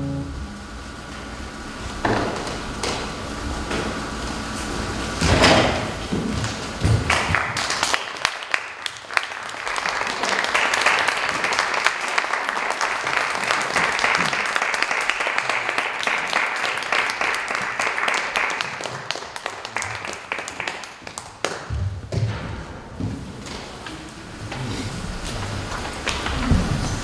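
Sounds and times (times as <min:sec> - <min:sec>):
audience applause: 0:06.3 - 0:21.7, 0:24.3 - 0:27.0.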